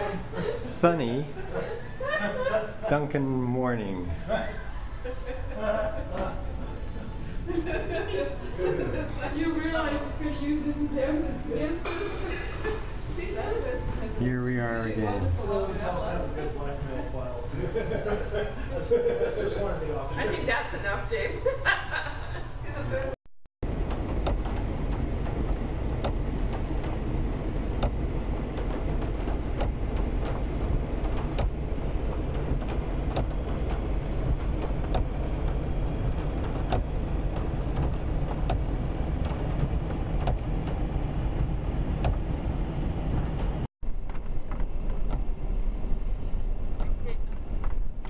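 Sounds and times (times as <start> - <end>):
engine and tyres rumbling: 23.6 - 48.0
rain and grit striking car body: 23.6 - 48.0.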